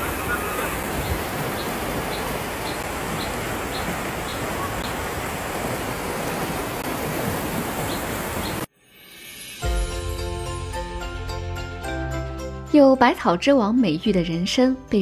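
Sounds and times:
floodwater rushing: 0.0s - 8.7s.

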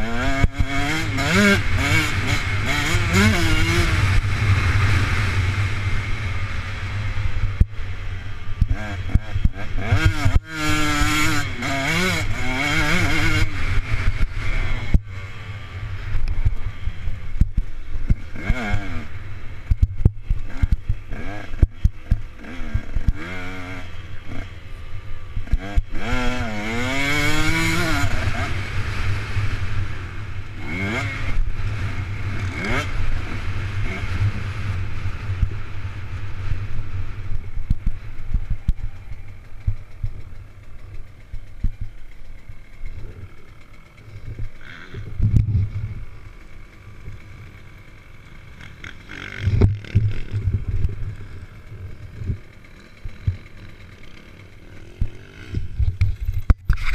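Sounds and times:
dirt bike engine revving: 0.0s - 56.9s
wind rumble on microphone: 44.3s - 46.1s.

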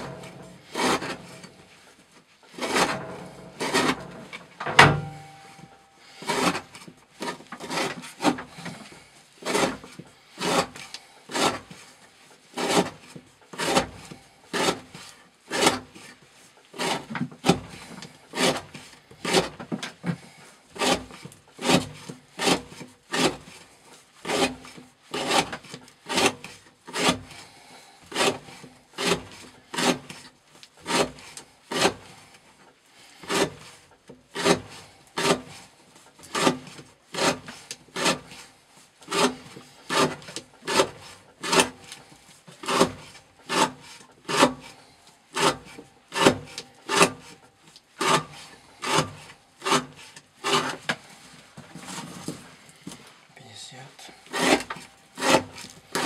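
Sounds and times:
knife rasping through rope: 0.0s - 53.2s, 54.0s - 56.0s.

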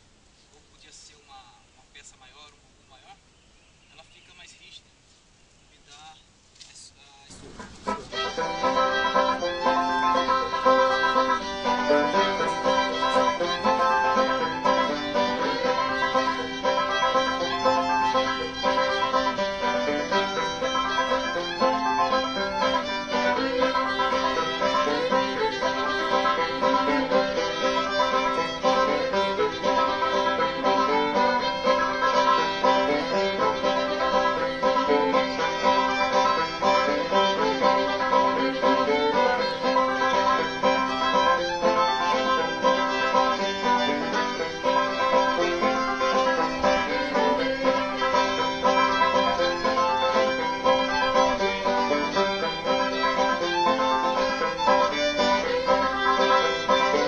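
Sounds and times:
upbeat string-band tune: 7.3s - 57.0s.

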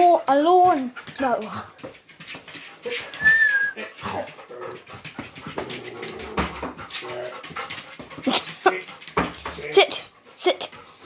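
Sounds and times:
dog panting: 0.0s - 3.2s, 3.8s - 11.0s
scuffling on hard floor: 0.5s - 9.7s
dog whining: 2.8s - 4.3s.

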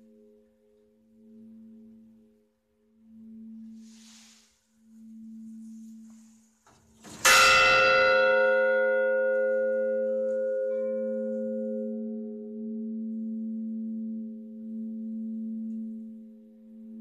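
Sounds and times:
low bell hum: 0.0s - 6.5s, 7.2s - 17.0s
church bell ringing: 7.2s - 16.0s.

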